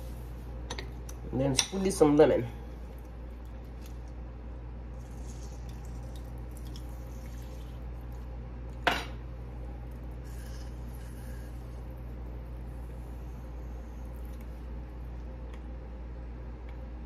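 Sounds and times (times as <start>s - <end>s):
low hum: 2.3s - 17.0s
lemon squeezer working: 4.9s - 8.2s, 9.9s - 12.0s.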